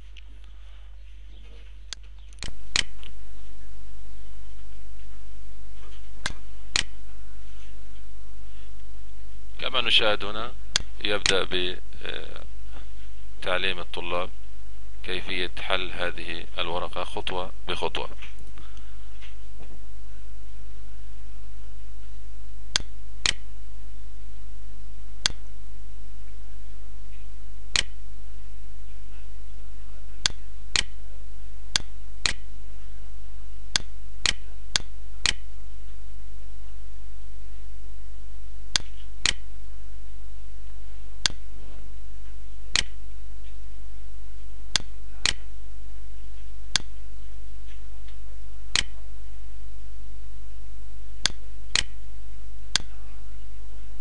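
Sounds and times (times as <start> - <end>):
low electrical hum: 0.0 - 54.0
mouse button clicks: 27.8 - 28.0, 48.8 - 49.0.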